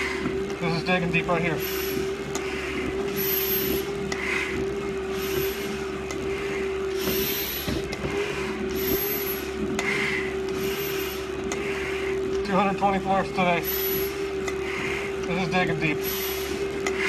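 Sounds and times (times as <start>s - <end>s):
steady low hum: 0.0s - 17.0s
hard breathing through mask: 1.6s - 12.3s, 13.6s - 15.2s, 16.0s - 17.0s.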